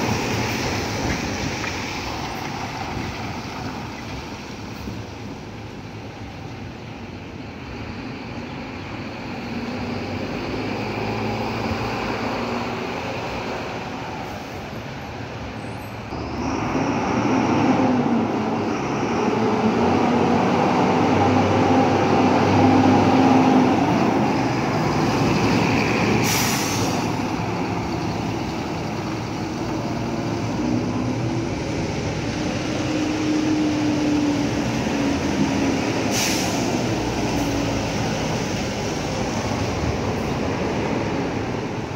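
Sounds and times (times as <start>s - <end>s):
bus diesel engines: 0.0s - 41.9s
air brake hiss: 26.2s - 27.2s, 36.0s - 37.5s.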